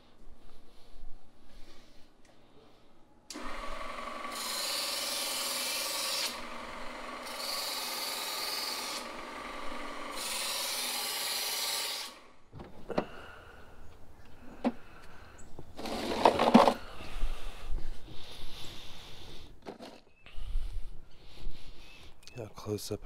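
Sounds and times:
electric knife sharpener motor: 3.3s - 12.3s.

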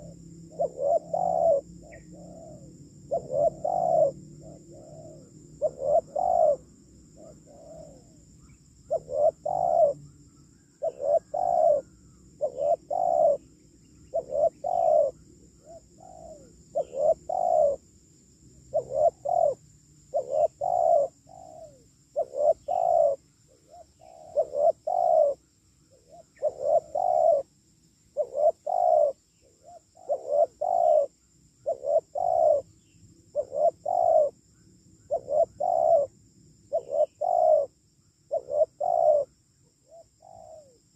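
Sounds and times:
dove cooing: 0.0s - 10.1s, 10.7s - 17.9s, 18.6s - 27.5s, 28.1s - 34.4s, 35.1s - 40.9s.

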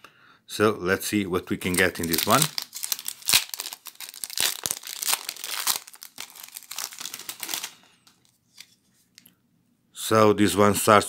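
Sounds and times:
plastic wrapper crinkling: 1.5s - 9.3s.

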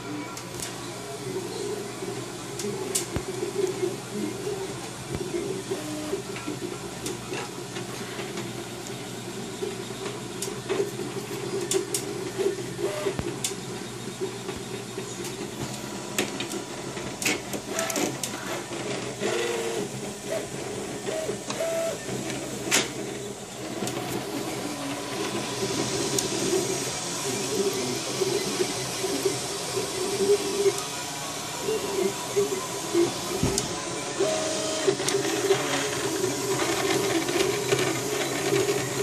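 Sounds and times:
cooling fans hissing: 0.0s - 39.0s
stepper motors whining: 17.2s - 39.0s.

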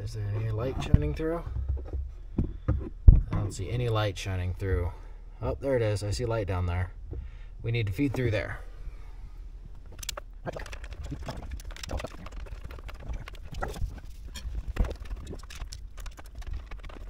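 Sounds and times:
wiring harness clicks and rustling: 9.7s - 17.0s.

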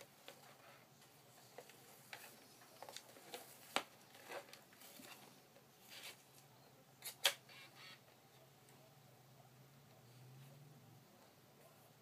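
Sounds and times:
plastic camcorder rustling: 0.0s - 6.2s.

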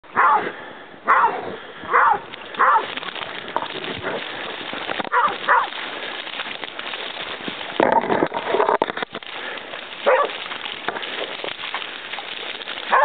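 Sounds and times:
hound barking: 0.1s - 3.1s, 5.0s - 5.8s, 10.0s - 10.4s.

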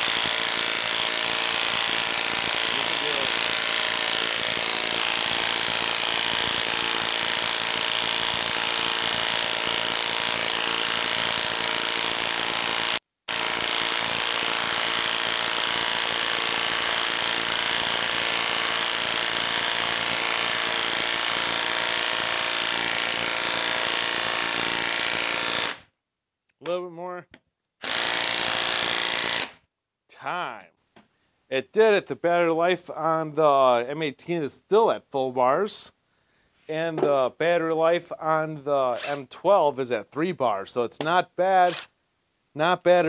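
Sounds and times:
impact wrench hammering: 0.0s - 25.8s.

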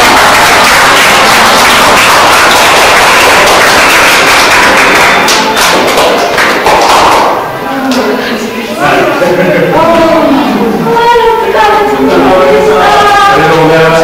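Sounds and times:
loud music: 0.0s - 7.7s.

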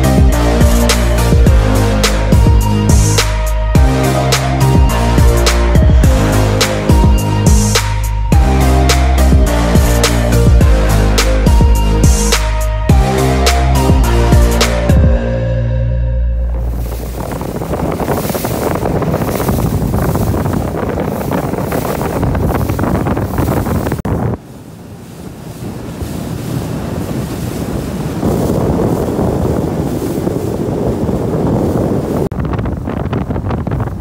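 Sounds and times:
water rushing past boat: 0.0s - 34.0s
wind buffeting microphone: 16.5s - 34.0s.

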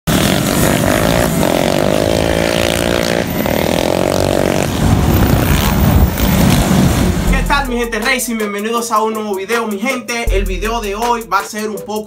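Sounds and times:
motorbike engine at high revs: 0.0s - 7.3s
low engine rumble: 4.4s - 8.3s.

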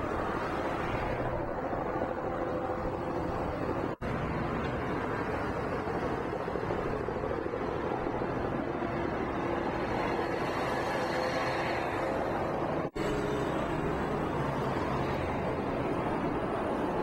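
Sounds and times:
vehicle noise: 0.0s - 17.0s.

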